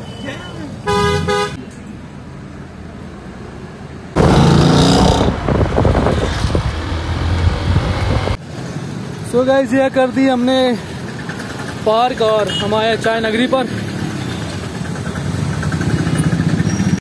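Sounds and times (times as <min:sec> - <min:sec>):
car horn: 0:00.0 - 0:01.6
traffic noise: 0:00.0 - 0:17.0
car exhaust roaring: 0:04.2 - 0:08.4.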